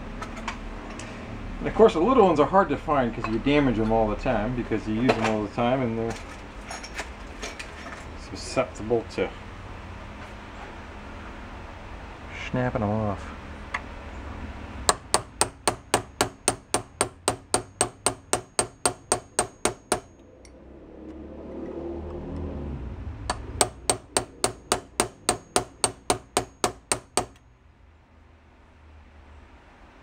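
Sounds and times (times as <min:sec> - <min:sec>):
hammer tapping on steel punch: 0:14.9 - 0:20.2, 0:23.3 - 0:27.4.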